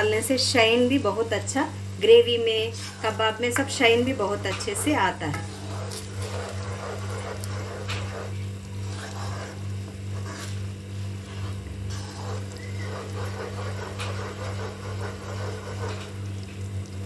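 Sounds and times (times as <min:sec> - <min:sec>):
steady low hum: 0:00.0 - 0:17.0
spatula scraping a pan: 0:02.7 - 0:03.2, 0:04.5 - 0:16.1
gravy bubbling in a pan: 0:05.4 - 0:17.0.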